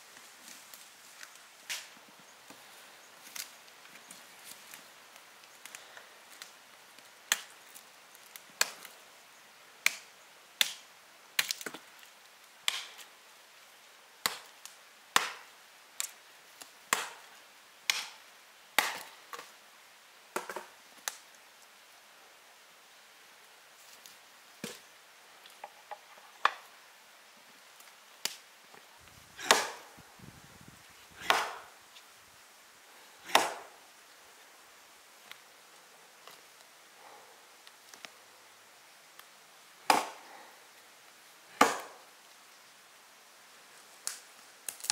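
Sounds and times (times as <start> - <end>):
blade chopping wood: 29.4 - 29.8, 31.2 - 31.6, 33.3 - 33.7, 39.9 - 40.2, 41.6 - 42.0.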